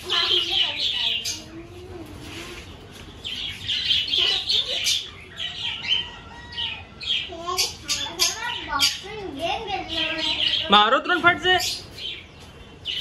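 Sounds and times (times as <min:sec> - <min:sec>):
budgerigars chirping: 0:00.1 - 0:01.5, 0:03.2 - 0:09.2.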